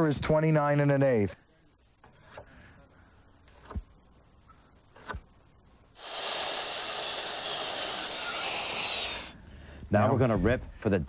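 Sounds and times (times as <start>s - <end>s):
circular saw cutting wood: 6.0s - 9.3s.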